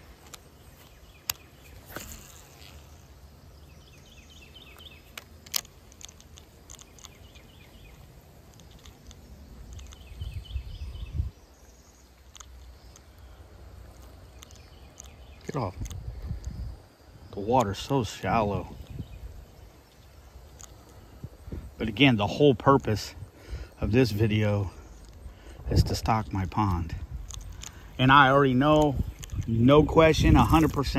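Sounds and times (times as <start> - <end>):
sharp clicks: 0.0 - 2.8, 4.6 - 10.4, 12.2 - 13.3, 13.9 - 16.6, 24.9 - 30.9
insects chirping: 0.0 - 30.9.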